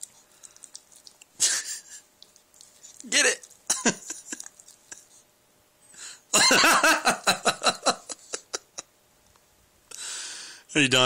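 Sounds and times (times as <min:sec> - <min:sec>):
person laughing: 0:01.4 - 0:02.0, 0:03.7 - 0:05.1, 0:06.3 - 0:08.9.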